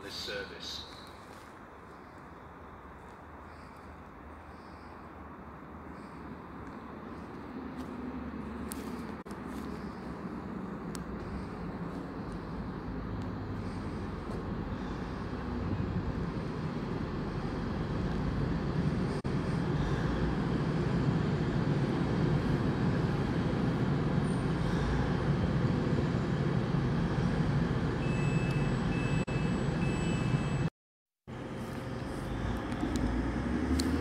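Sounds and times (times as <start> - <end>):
train engine deep rumble: 2.2 - 30.7, 31.3 - 34.0
high train squeals: 22.4 - 30.7.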